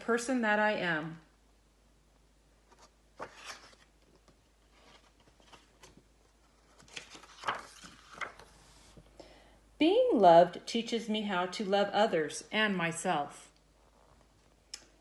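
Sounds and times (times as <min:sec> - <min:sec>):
book pages turning: 0:02.6 - 0:09.0.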